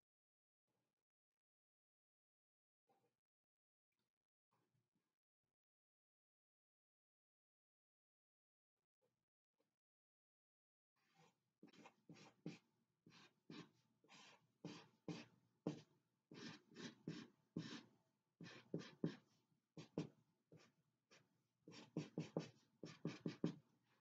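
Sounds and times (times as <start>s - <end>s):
marker scratching on paper: 11.0s - 19.2s, 19.8s - 23.6s.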